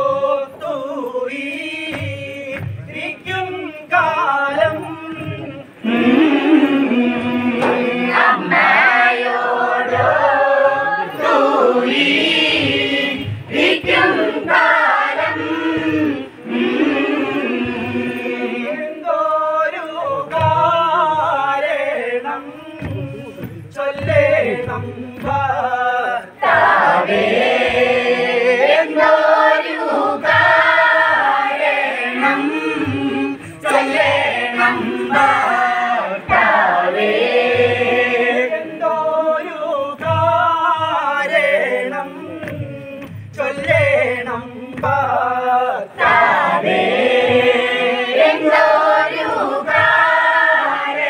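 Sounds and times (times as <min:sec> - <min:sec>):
group singing folk song: 0:00.0 - 0:51.0
hand claps: 0:42.2 - 0:45.1.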